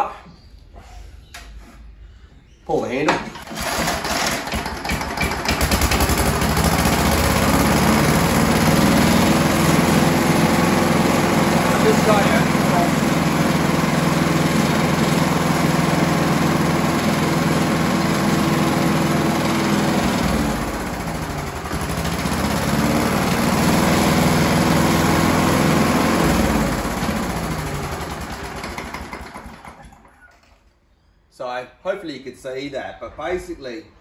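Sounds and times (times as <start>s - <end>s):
lawnmower engine running: 3.3s - 30.2s.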